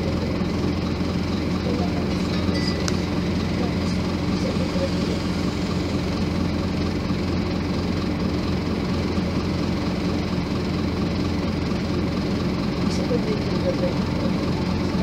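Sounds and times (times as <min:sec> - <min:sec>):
diesel bus engine idling: 0:00.0 - 0:15.0.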